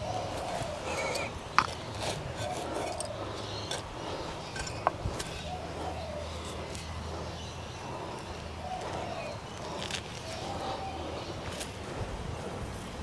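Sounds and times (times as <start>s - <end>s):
trowel digging in soil: 0.0s - 7.0s.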